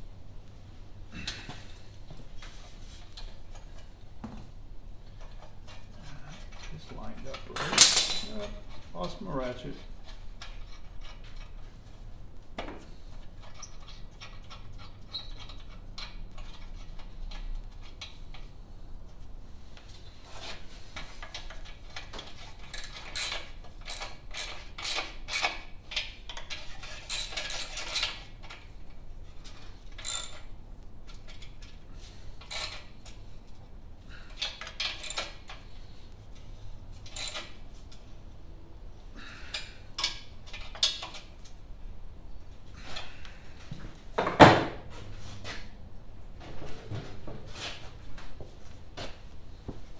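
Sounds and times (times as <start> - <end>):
metal tools clinking: 5.2 - 9.2.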